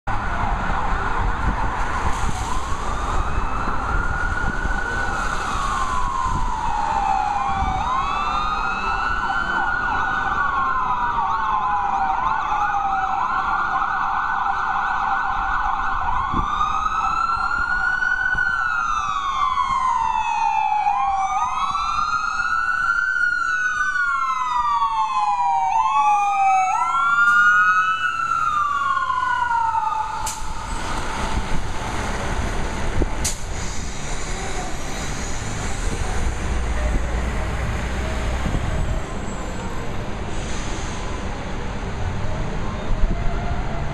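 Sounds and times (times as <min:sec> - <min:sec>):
fire truck sirens wailing: 0:00.1 - 0:43.9
low rumble of traffic: 0:00.1 - 0:43.9.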